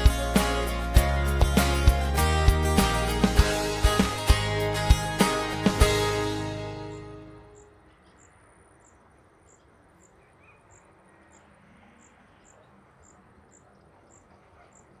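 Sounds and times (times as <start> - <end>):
crickets chirping: 7.5 - 14.9.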